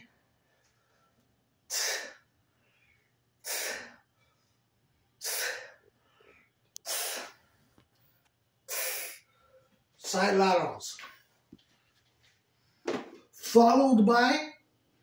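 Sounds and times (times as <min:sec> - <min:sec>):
man breathing hard: 0:01.7 - 0:04.1, 0:05.2 - 0:07.5.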